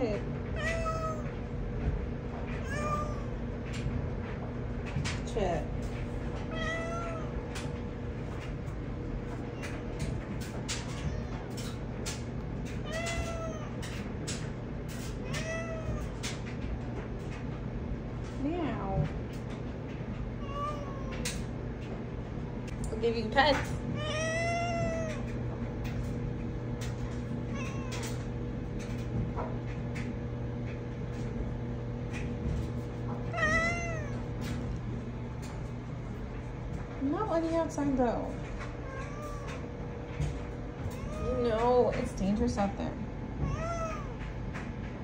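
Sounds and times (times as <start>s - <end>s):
steady low hum: 0.0s - 45.0s
cat meowing: 0.6s - 1.4s, 2.6s - 3.4s, 6.5s - 7.6s, 10.7s - 11.8s, 12.8s - 14.0s, 15.2s - 16.4s, 20.4s - 21.4s, 24.0s - 25.3s, 27.5s - 28.2s, 33.3s - 34.3s, 38.8s - 39.6s, 40.9s - 41.4s, 43.4s - 44.2s.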